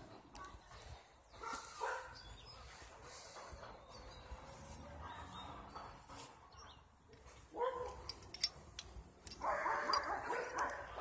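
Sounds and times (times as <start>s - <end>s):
dog barking: 1.4s - 2.2s, 7.5s - 8.1s, 9.4s - 11.0s.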